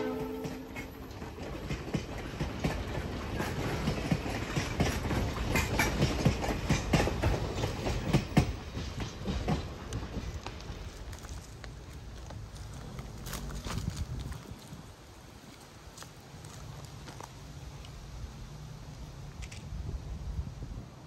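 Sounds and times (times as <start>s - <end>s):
train wheels clacking over rail joints: 0.0s - 14.0s
train rumble: 0.0s - 21.0s.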